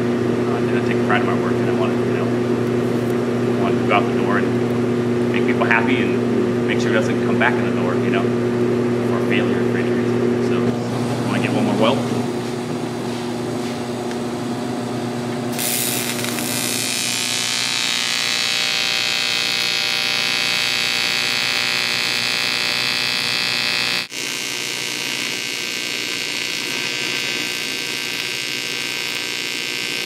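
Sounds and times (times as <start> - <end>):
welding arc buzzing with hiss: 15.4 - 30.0.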